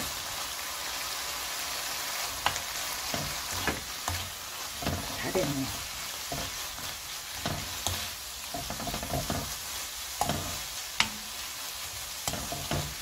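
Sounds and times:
food sizzling in a frying pan: 0.0s - 13.0s
spatula scraping a pan: 2.2s - 13.0s
spatula clicking against pan: 11.0s - 11.2s.

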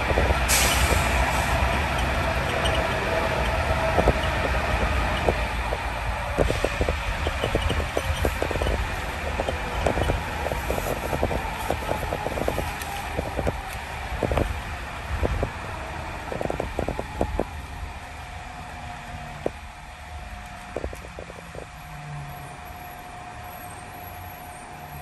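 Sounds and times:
tram knocking over guideway: 0.0s - 17.6s
steady whine: 0.0s - 23.8s
tram rumbling: 0.0s - 25.0s.

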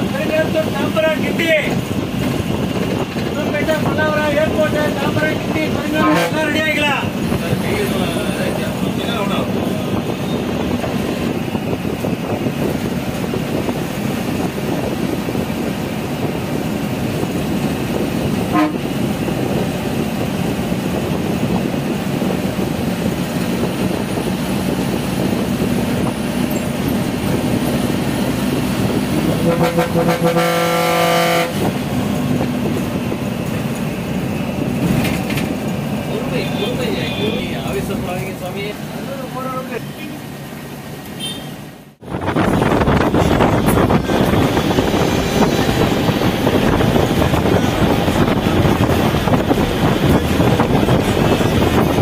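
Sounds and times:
bus engine and road noise: 0.0s - 52.0s
bus horn: 5.8s - 6.6s, 18.4s - 19.0s, 29.3s - 31.8s, 41.1s - 41.7s.

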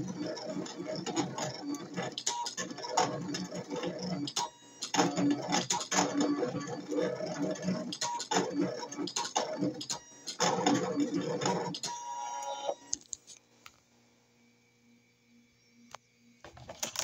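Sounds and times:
cutting machine motors whirring: 0.0s - 13.0s.

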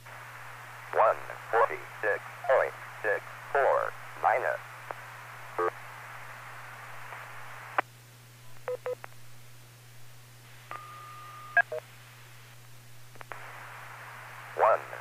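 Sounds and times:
radio hiss: 0.0s - 7.9s, 9.9s - 10.7s, 11.7s - 15.0s
held tone: 10.7s - 11.8s.

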